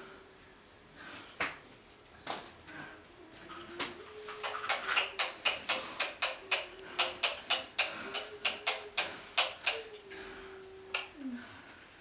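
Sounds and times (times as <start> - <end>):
sharp rhythmic clicks: 4.3 - 10.0.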